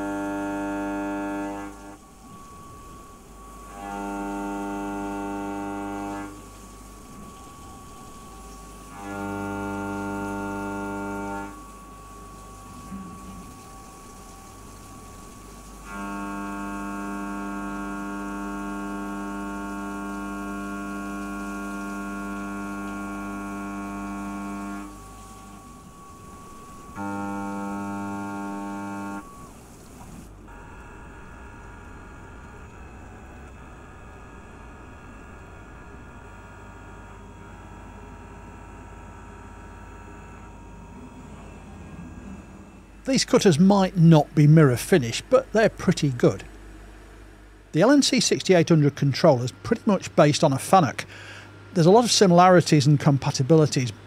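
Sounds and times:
milling machine cutting whine: 0.0s - 54.0s
coolant spray hiss: 0.9s - 33.1s.

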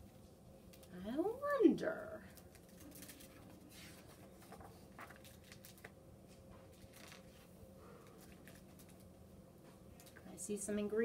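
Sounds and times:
low room hum: 0.0s - 11.0s
paper pages turning: 2.4s - 9.1s.

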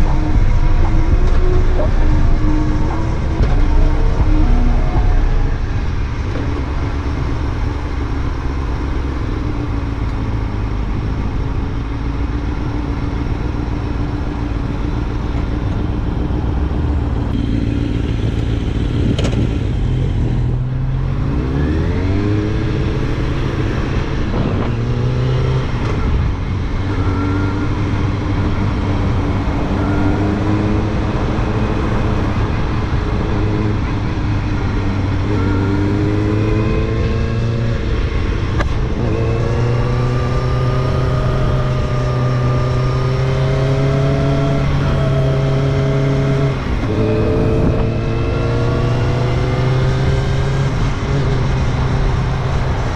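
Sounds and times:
motorcycle engine running: 0.0s - 21.0s.

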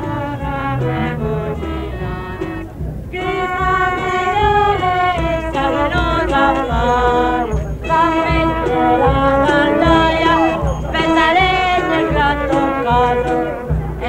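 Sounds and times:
small street band playing: 0.0s - 14.0s
voices singing: 0.0s - 14.0s.

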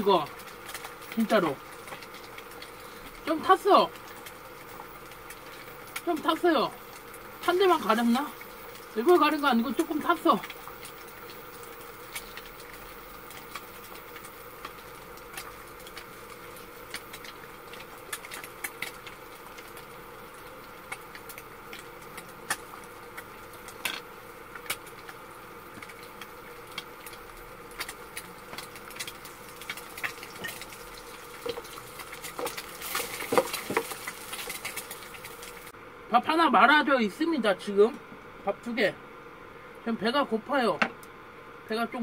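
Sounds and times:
faint steady hum: 0.0s - 42.0s
frying pan clattering: 31.4s - 35.2s.

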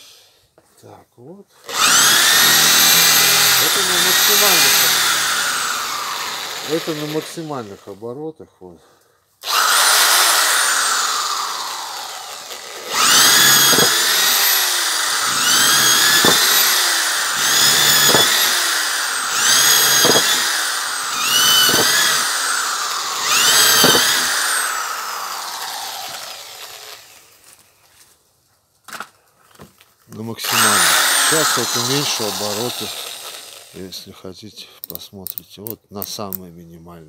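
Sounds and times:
impact drill boring into wood: 1.7s - 8.0s, 9.4s - 27.3s, 30.4s - 34.0s.

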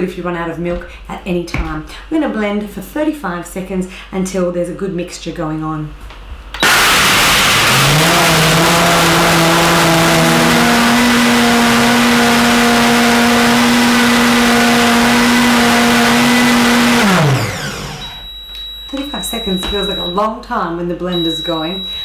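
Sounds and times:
blender motor whining: 6.6s - 18.4s.

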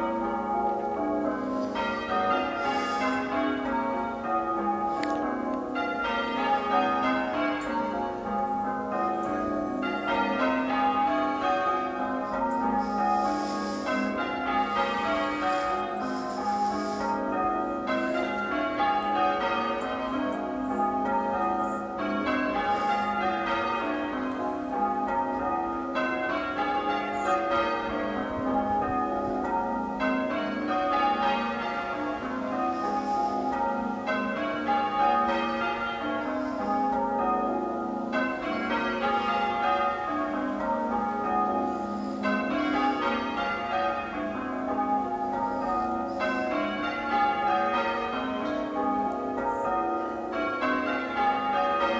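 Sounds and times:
church bells ringing: 0.0s - 51.9s.

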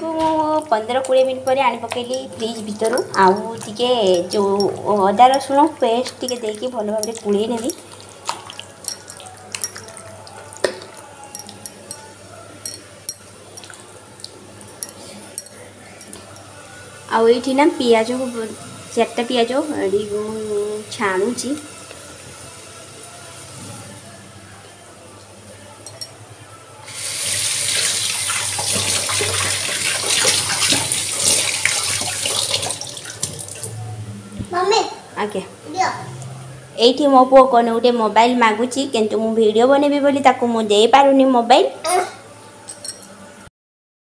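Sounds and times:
glass bangles clinking: 4.0s - 5.6s, 6.2s - 7.8s, 8.8s - 10.0s, 11.3s - 13.7s, 14.8s - 16.5s, 25.8s - 26.2s, 42.6s - 43.2s
wet squishing of marinade: 4.9s - 11.1s.

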